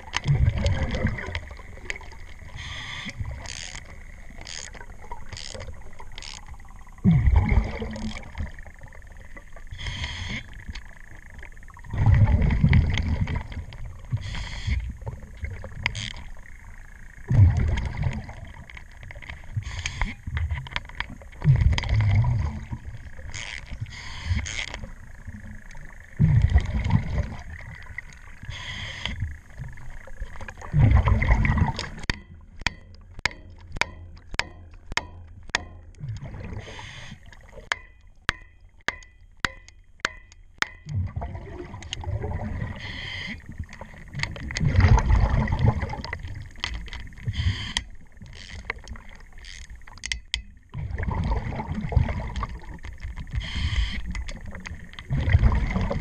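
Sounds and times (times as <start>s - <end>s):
gurgling bubble bursts: 0.0s - 2.1s, 7.0s - 8.6s, 11.8s - 14.1s, 17.3s - 18.6s, 21.4s - 23.0s, 26.2s - 28.0s, 30.2s - 32.0s, 36.0s - 36.7s, 40.9s - 42.8s, 43.7s - 46.4s, 50.7s - 52.8s, 55.0s - 56.0s
regulator breathing underwater: 2.5s - 3.4s, 9.7s - 10.6s, 14.1s - 14.9s, 23.8s - 24.6s, 28.5s - 29.2s, 36.4s - 37.3s, 42.7s - 43.5s, 47.3s - 47.9s, 53.4s - 54.1s.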